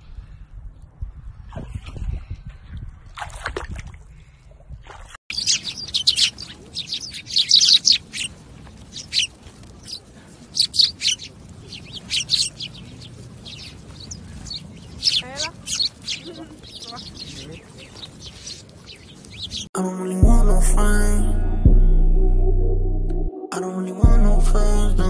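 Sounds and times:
sparrows chirping: 0:05.3 - 0:19.7
low rumble: 0:20.2 - 0:25.0.

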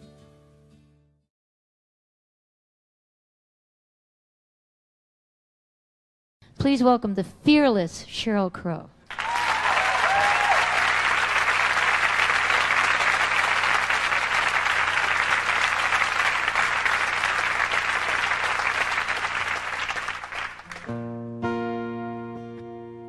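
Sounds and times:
audience applauding and cheering: 0:09.1 - 0:20.9
guitar strumming chords: 0:20.7 - 0:23.0.

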